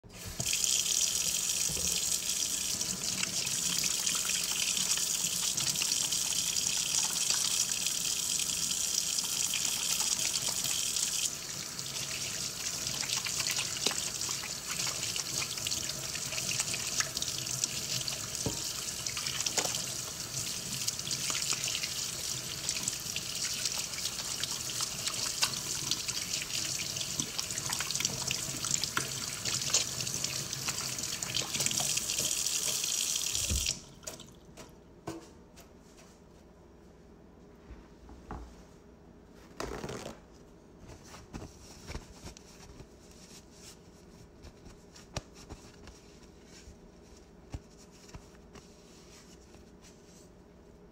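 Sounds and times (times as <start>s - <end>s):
tap water splashing into sink: 18.4s - 19.9s, 30.6s - 34.4s.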